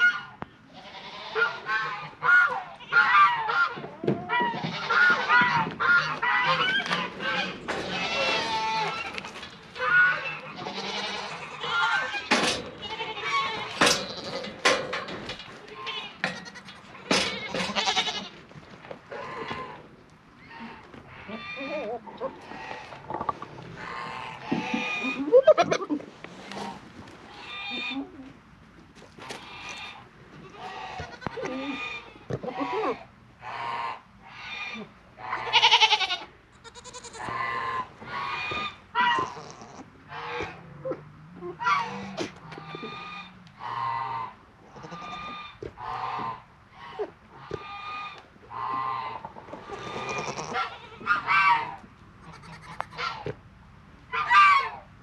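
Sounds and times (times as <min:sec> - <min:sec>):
goats bleating: 0:00.8 - 0:14.7, 0:15.4 - 0:18.4, 0:20.5 - 0:23.1, 0:29.3 - 0:33.0, 0:34.7 - 0:40.6, 0:41.6 - 0:46.4, 0:47.5 - 0:53.1.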